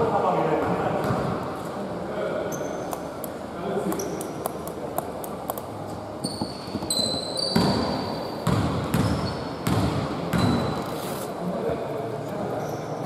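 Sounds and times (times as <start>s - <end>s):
basketball bouncing on hardwood: 8.4s - 10.6s.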